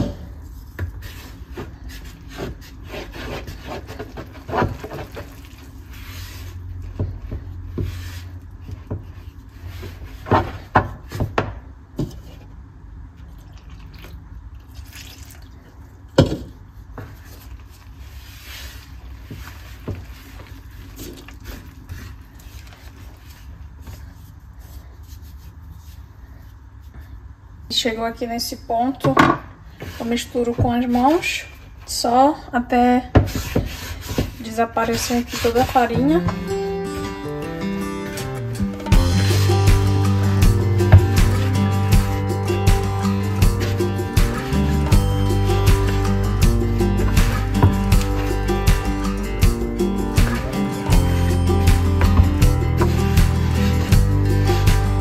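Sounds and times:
water pouring into a bowl: 0:13.4 - 0:15.6
utensil scraping and knocking bowl: 0:38.8 - 0:55.0.

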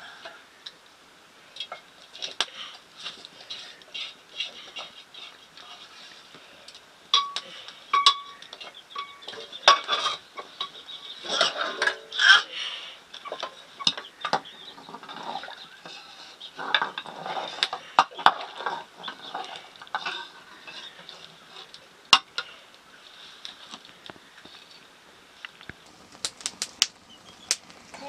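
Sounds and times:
metal utensils clinking on pots: 0:06.7 - 0:12.6, 0:13.2 - 0:22.6.

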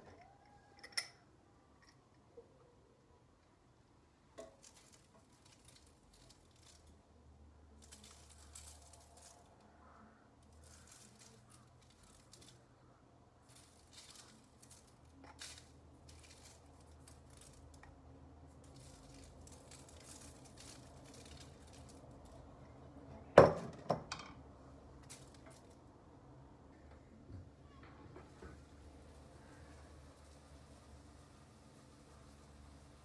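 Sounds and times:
salt grains pattering: 0:04.4 - 0:09.8, 0:10.4 - 0:22.6, 0:28.6 - 0:33.0
fingers rustling in salt: 0:07.7 - 0:22.6.

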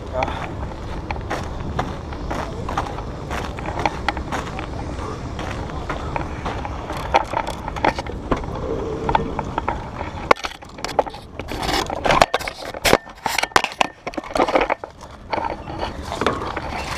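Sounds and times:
low rumble: 0:00.0 - 0:11.5
sharp handling clicks and knocks: 0:05.4 - 0:08.5, 0:09.1 - 0:16.9
gear rubbing against camera: 0:06.1 - 0:16.9.

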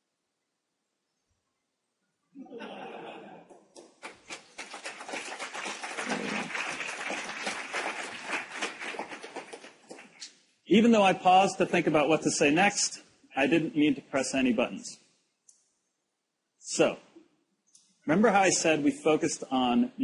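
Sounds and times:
audience laughing and cheering: 0:02.4 - 0:03.8, 0:05.7 - 0:09.4
audience applause: 0:03.7 - 0:10.2.

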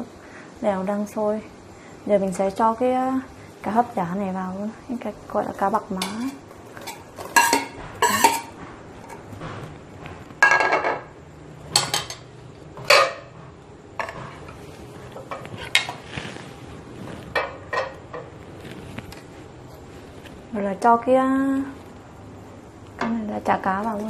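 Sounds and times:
metal spoon scraping and clinking: 0:06.0 - 0:08.5.

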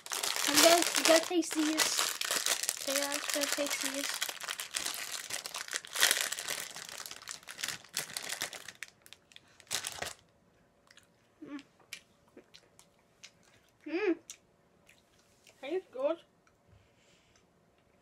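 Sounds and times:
sweet wrapper crinkling: 0:00.0 - 0:10.3.

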